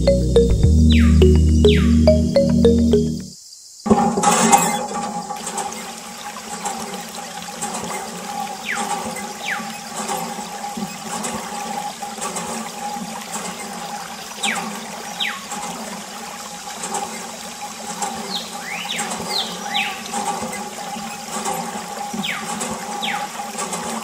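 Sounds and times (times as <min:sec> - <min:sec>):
water jet splashing on toys: 0:05.3 - 0:24.0.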